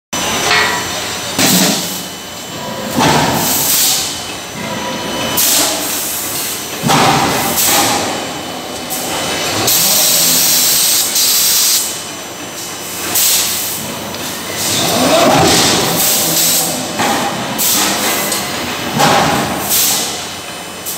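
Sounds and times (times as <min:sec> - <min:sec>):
forging press hissing blasts: 0:01.0 - 0:12.2, 0:12.9 - 0:20.9.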